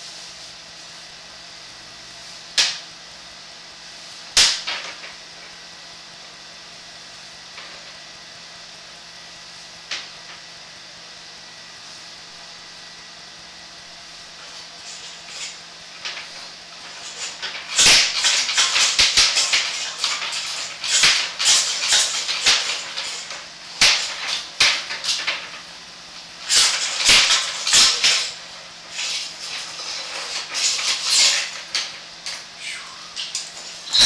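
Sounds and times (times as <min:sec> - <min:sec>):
cable rattling and scraping in pipe: 0:14.4 - 0:25.6, 0:26.4 - 0:34.0.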